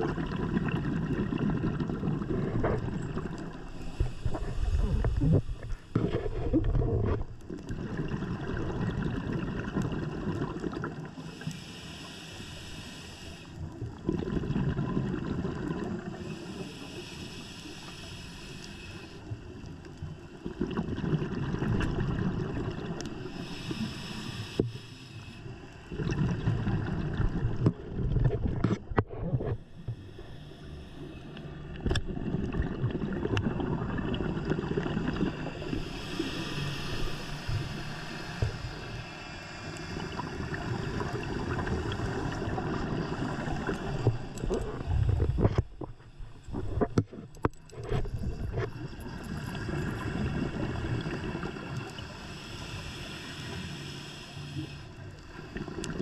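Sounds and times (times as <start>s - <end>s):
exhaled bubbles rumbling: 0.0s - 11.2s, 13.7s - 16.3s, 20.3s - 23.3s, 25.9s - 30.0s, 31.7s - 36.0s, 39.7s - 52.0s
regulator inhale hiss: 3.6s - 6.6s, 11.1s - 13.8s, 16.1s - 19.7s, 23.1s - 25.9s, 29.6s - 31.7s, 35.3s - 47.0s, 49.5s - 55.9s.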